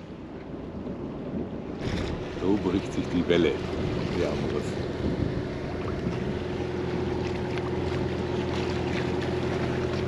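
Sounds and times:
boat engine humming: 0:00.0 - 0:10.0
water rushing: 0:01.6 - 0:10.0.

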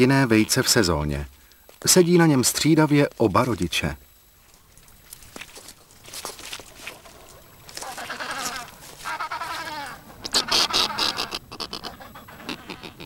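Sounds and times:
birds calling harshly: 0:07.6 - 0:13.0.

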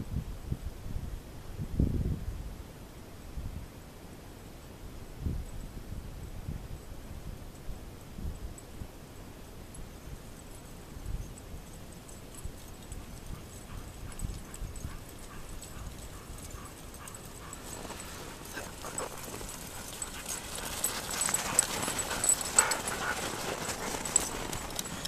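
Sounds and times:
sled clicks and rattles: 0:10.1 - 0:25.0
dogs' footfalls on packed snow: 0:12.0 - 0:25.0.

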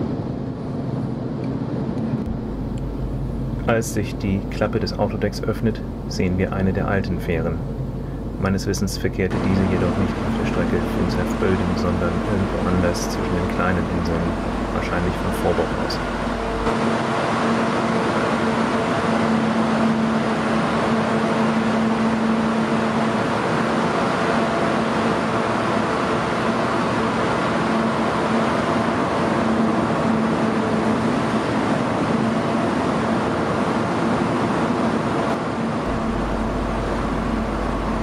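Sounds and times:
ferry machinery rushing drone: 0:00.1 - 0:38.0.

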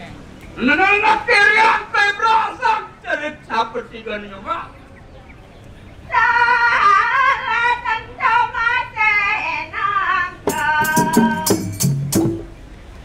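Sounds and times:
sharp percussive clashes: 0:10.5 - 0:12.6.

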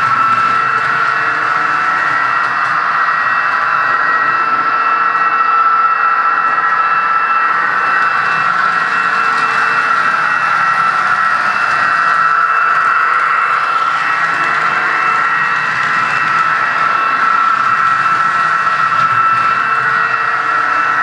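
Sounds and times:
constant high whine: 0:00.0 - 0:21.0
model locomotive diesel engine sound: 0:00.0 - 0:21.0.

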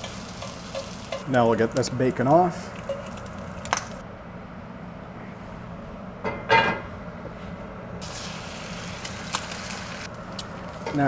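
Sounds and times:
fork clinking on skillet: 0:00.0 - 0:01.2
bacon grease sizzling: 0:00.0 - 0:04.0, 0:08.0 - 0:11.0
low kitchen hum: 0:00.0 - 0:11.0.

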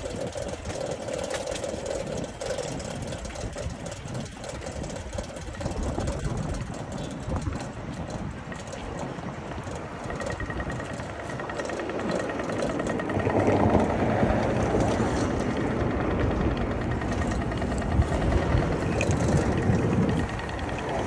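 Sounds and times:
vehicles going by: 0:06.8 - 0:21.0.

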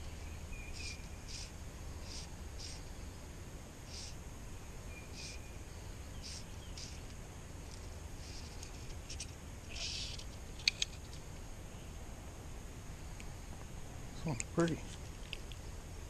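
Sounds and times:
fly line zipping through rod guides: 0:07.7 - 0:10.9.

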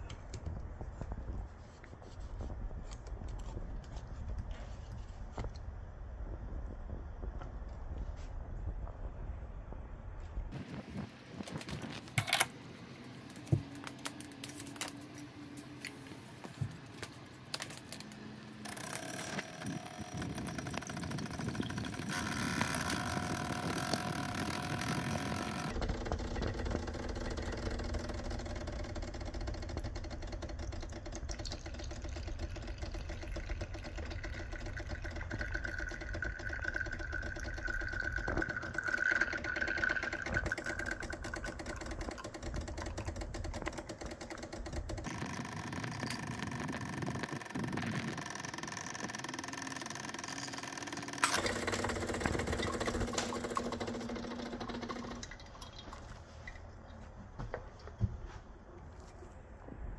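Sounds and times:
espresso machine pump humming: 0:18.6 - 0:55.8.

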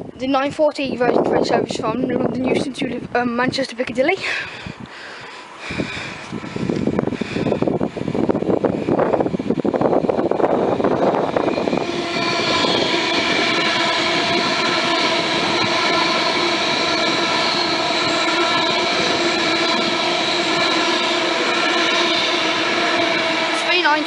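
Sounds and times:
electric train passing at speed: 0:00.0 - 0:24.0
high-pitched whine: 0:06.5 - 0:24.0.

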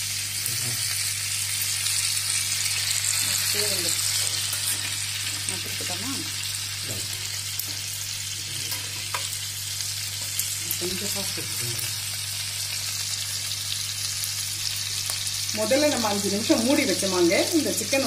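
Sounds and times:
chicken sizzling in oil: 0:00.0 - 0:18.0.

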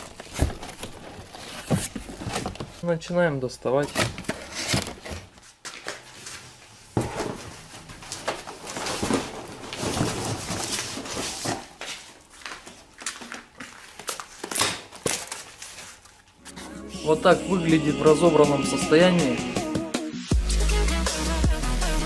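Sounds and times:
cardboard and packaging rustling: 0:00.0 - 0:16.8.

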